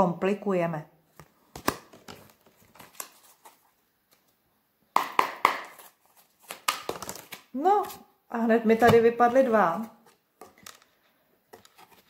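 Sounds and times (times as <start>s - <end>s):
cards shuffling: 1.2s - 4.3s, 5.4s - 8.0s, 8.8s - 12.0s
cards slapping: 1.5s - 3.6s, 5.0s - 8.0s.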